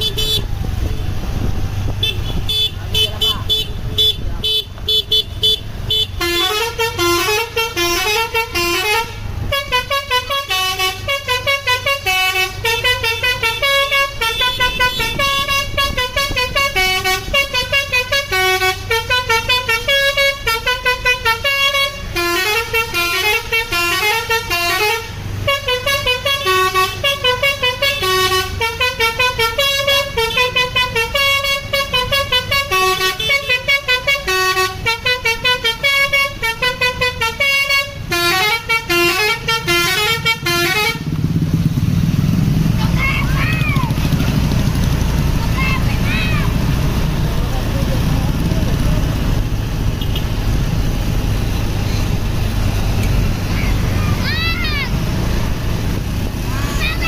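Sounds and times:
bus horn melody: 0.0s - 1.0s, 2.0s - 41.2s
bus engine humming: 0.0s - 57.0s.

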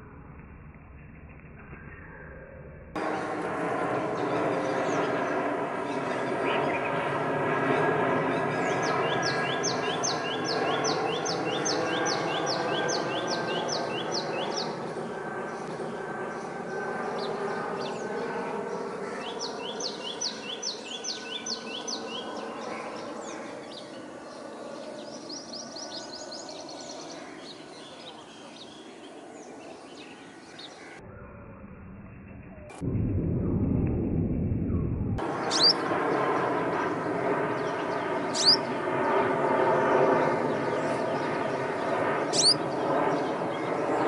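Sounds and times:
steady low drone: 0.0s - 18.8s, 30.9s - 44.0s
songbird trilling: 35.4s - 35.9s, 38.2s - 38.8s, 42.2s - 42.8s.

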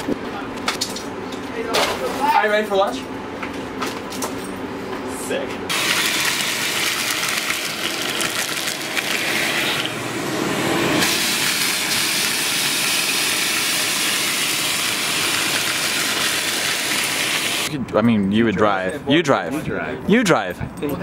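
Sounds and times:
vacuum cleaner running: 5.7s - 17.7s.

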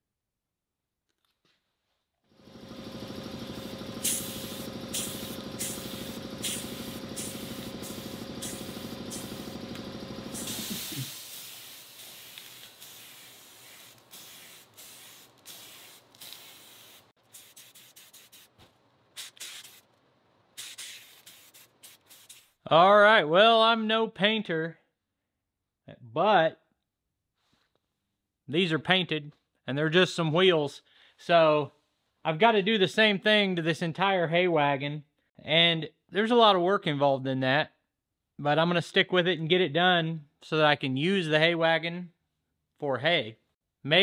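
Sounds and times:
motor running steadily: 2.3s - 11.2s
spray gun hissing: 2.6s - 18.6s, 19.2s - 19.9s, 20.6s - 22.6s.

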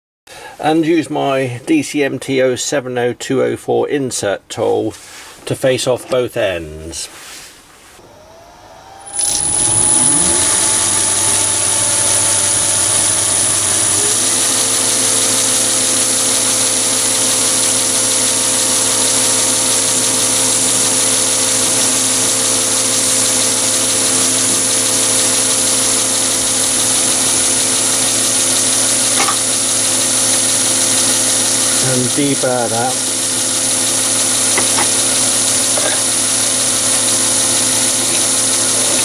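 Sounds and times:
lathe spinning with high whine: 8.0s - 39.0s.

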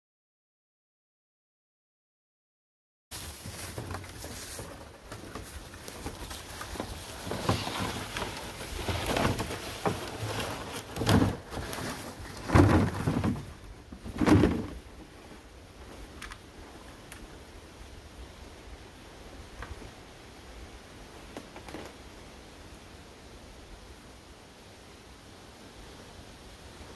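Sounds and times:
footsteps crunching through dry leaves: 3.1s - 12.4s.

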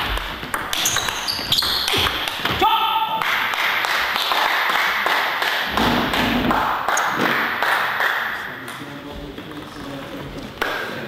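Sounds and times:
crowd clapping: 3.1s - 8.8s.

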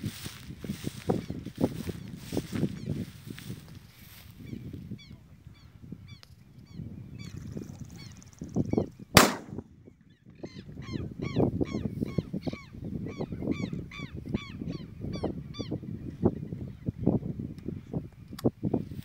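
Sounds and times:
shotgun shot: 9.2s - 9.6s.

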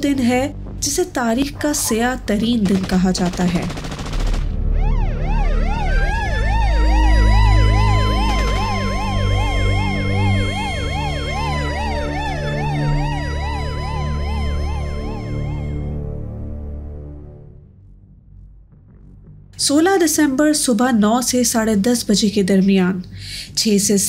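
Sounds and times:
siren wailing tone: 4.6s - 16.4s
siren yelping: 4.7s - 16.0s
low rumble: 15.9s - 20.5s.

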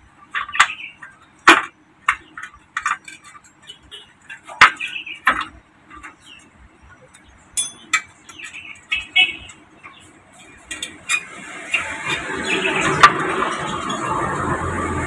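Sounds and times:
metal clinks and taps: 7.6s - 8.1s.

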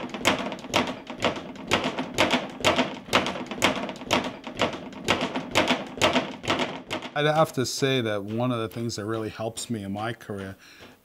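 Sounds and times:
speed bag being punched: 0.0s - 7.2s.

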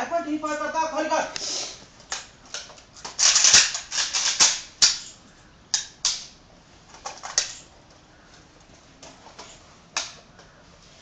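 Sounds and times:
rifle metal clicks and clacks: 2.1s - 5.1s, 5.7s - 6.4s.

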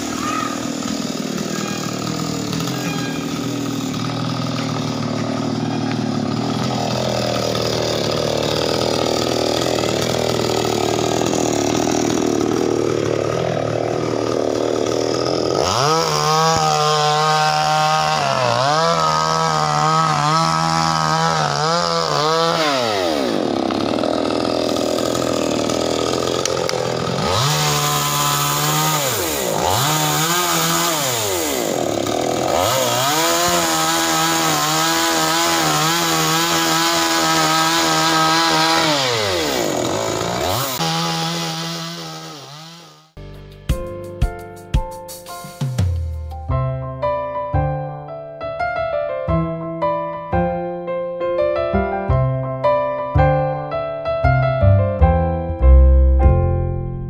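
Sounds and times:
chainsaw revving: 0.0s - 43.2s.

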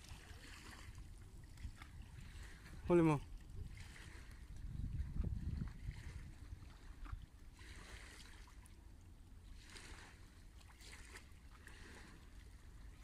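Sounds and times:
wind rumble on microphone: 0.0s - 7.9s.

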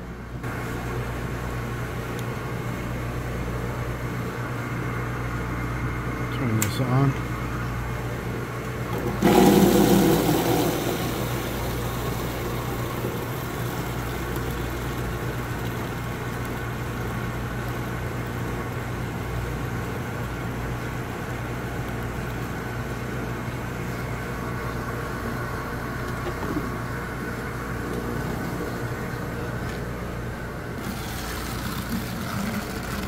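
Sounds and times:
machine humming: 7.2s - 33.0s
slush gushing from valve: 9.0s - 17.8s, 30.8s - 33.0s
stream pouring into plastic bin: 9.0s - 18.8s, 30.8s - 33.0s.

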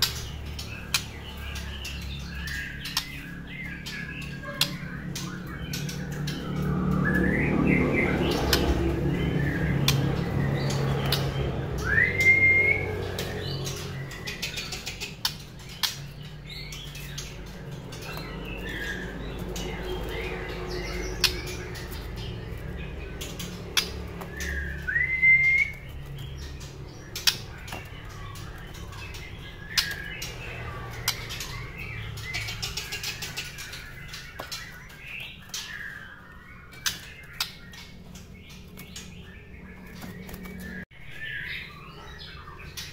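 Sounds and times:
bird whistles: 11.8s - 13.0s, 24.4s - 25.9s.

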